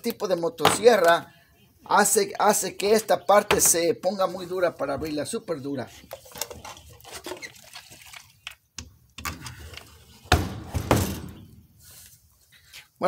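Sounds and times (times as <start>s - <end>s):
gasoline pouring and dripping: 6.0s - 9.5s.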